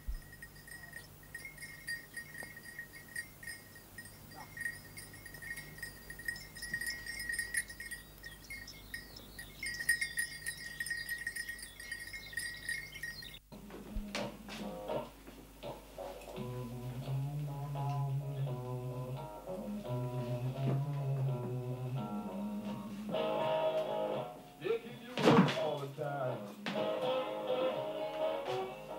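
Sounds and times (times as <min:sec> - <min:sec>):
cowbells jangling: 0:00.0 - 0:13.4.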